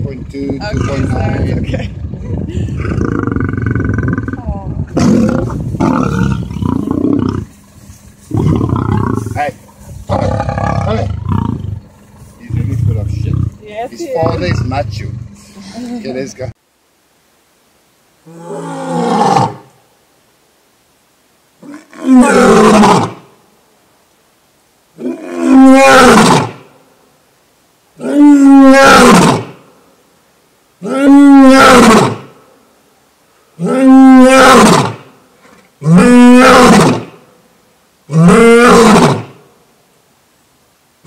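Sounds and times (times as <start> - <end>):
lion roaring: 2.0 - 7.6, 8.2 - 15.7, 18.3 - 19.7, 21.6 - 23.2, 25.0 - 26.6, 28.0 - 29.6, 30.8 - 32.2, 33.6 - 37.1, 38.1 - 39.4
lion grunt: 8.3 - 16.0.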